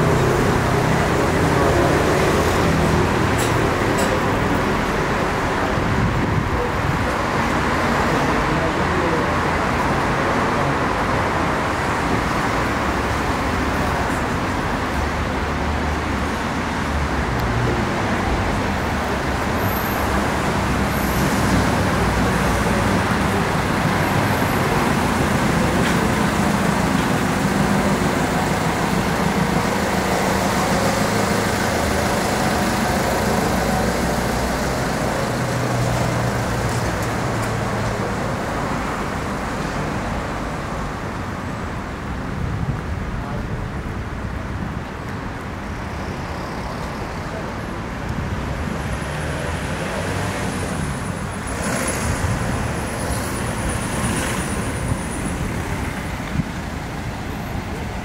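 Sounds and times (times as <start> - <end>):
train wheels on rails: 0.0 - 7.4, 18.4 - 39.8.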